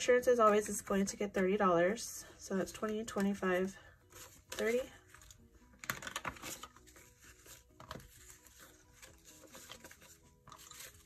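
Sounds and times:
soft background music: 0.0s - 11.0s
banknotes rustling and flicking: 2.4s - 11.0s.

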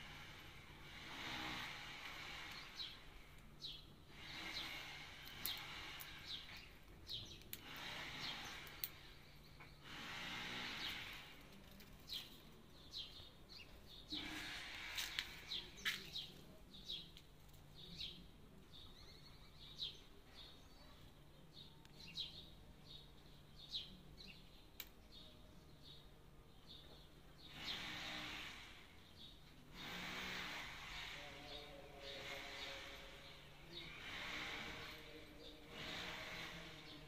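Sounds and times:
bird cracking seeds: 5.2s - 9.1s.

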